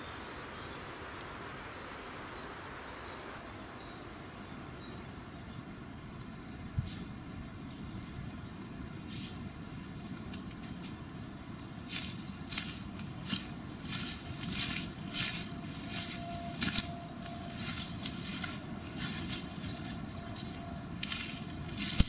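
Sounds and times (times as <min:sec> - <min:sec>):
low steady rumble: 0:05.4 - 0:22.0
footsteps crunching through leaves: 0:09.0 - 0:22.0.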